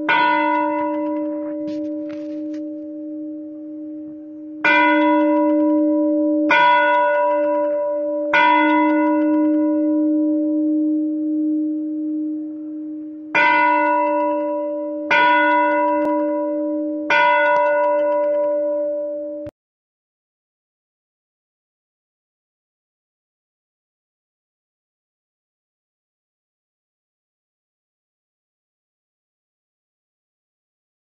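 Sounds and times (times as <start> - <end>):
bell tolling: 0.0 - 19.5.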